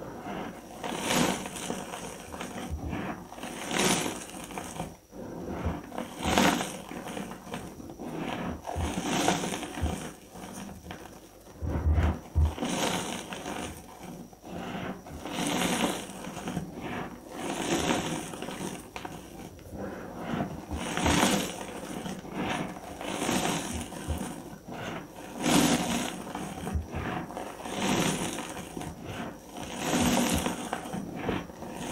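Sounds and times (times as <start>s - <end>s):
chalk crumbling between fingers: 12.1s - 31.9s.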